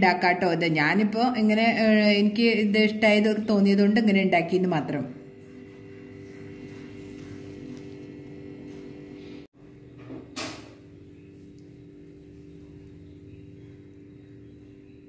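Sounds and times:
background hum: 0:04.9 - 0:15.0.

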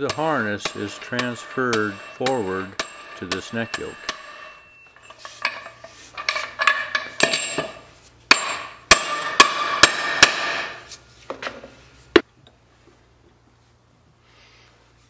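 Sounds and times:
hammer striking metal: 0:00.0 - 0:05.6, 0:06.4 - 0:10.9.

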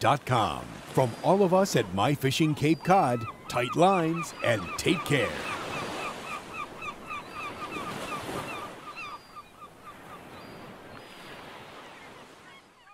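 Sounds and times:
ocean surf washing on beach: 0:00.0 - 0:08.8
bird calling rapidly: 0:01.0 - 0:10.6.

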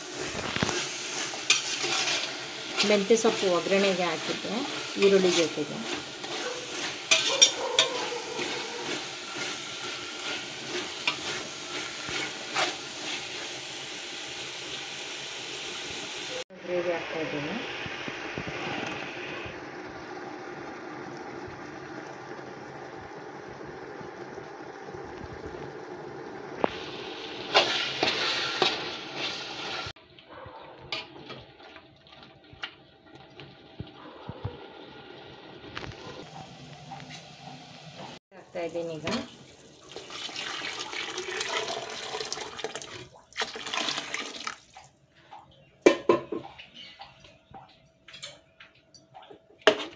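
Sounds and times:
food sizzling in a pot: 0:00.0 - 0:44.6
spatula scraping a metal pot: 0:00.1 - 0:13.4, 0:27.5 - 0:29.8
ladle clinking: 0:05.0 - 0:09.5.

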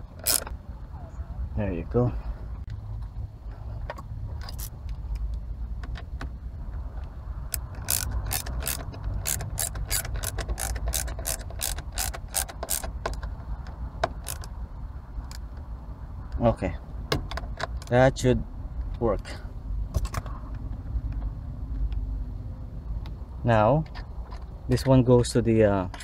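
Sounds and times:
ratcheting screwdriver clicking: 0:00.2 - 0:00.5, 0:07.5 - 0:13.2, 0:14.1 - 0:14.5.

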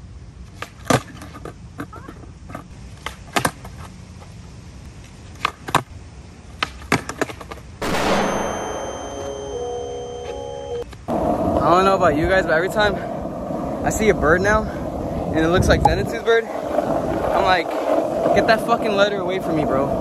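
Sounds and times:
skateboard popping and landing: 0:00.5 - 0:03.9, 0:06.6 - 0:07.7.

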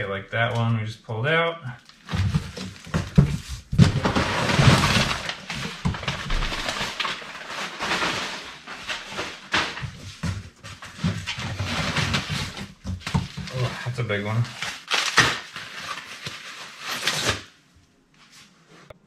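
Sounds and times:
packing paper crinkling: 0:01.8 - 0:10.3, 0:10.9 - 0:17.5
sharp crackles and knocks: 0:01.8 - 0:13.7.

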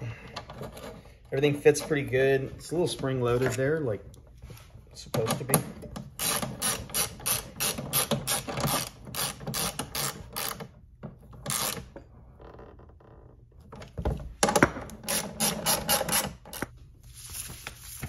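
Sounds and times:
socket ratchet clicking: 0:06.0 - 0:10.8, 0:11.4 - 0:11.9, 0:14.9 - 0:16.7.

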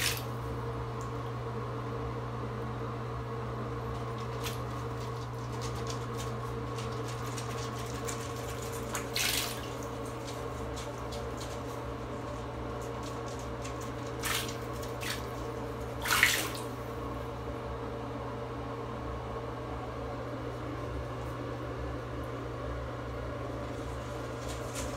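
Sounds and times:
bathwater splashing and sloshing: 0:00.0 - 0:00.4, 0:03.8 - 0:17.0
steady hum: 0:00.0 - 0:24.9.

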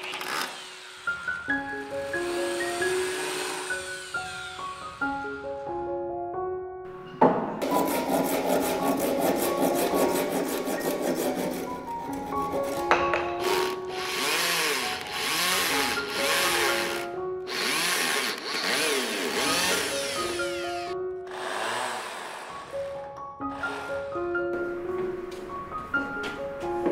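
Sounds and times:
wood rasping and rubbing: 0:00.0 - 0:04.9, 0:07.6 - 0:23.9
electric drill driving screw: 0:00.0 - 0:05.2, 0:13.4 - 0:22.9, 0:23.5 - 0:23.9
soft piano background music: 0:01.1 - 0:17.6, 0:19.4 - 0:26.9.

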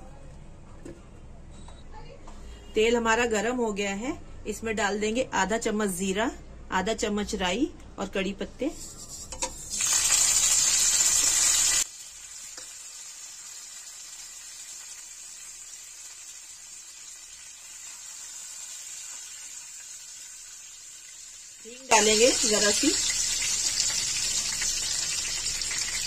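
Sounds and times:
spices sizzling in hot oil: 0:08.7 - 0:26.0.

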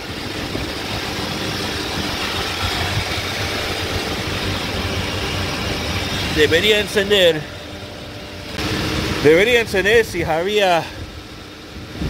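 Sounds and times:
refrigeration machinery humming: 0:00.0 - 0:12.0.

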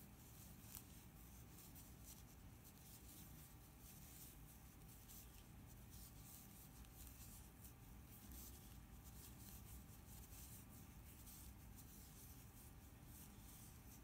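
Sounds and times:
yarn scratching and rustling: 0:00.0 - 0:14.0.

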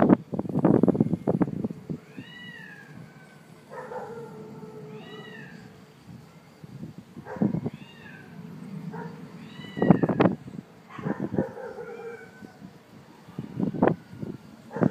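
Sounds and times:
lower longer animal cry: 0:02.0 - 0:05.8, 0:07.4 - 0:10.5
short rising and falling animal cries: 0:02.0 - 0:05.8, 0:07.3 - 0:10.4.

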